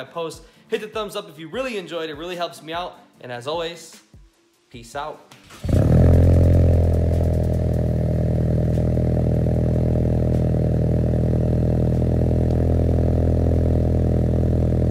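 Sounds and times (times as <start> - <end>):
car engine idling: 5.6 - 14.9.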